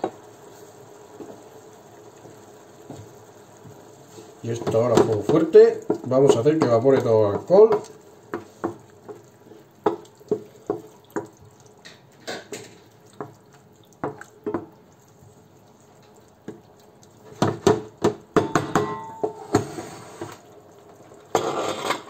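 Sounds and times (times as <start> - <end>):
spoon stirring bubbling sauce: 0.0 - 19.4
metal pot clattering: 17.5 - 19.8.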